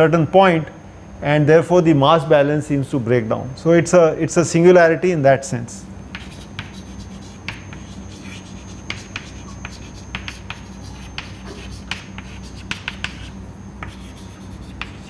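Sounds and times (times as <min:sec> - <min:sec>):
steady low hum: 0:00.0 - 0:15.0
chalk tapping and scratching: 0:06.1 - 0:15.0.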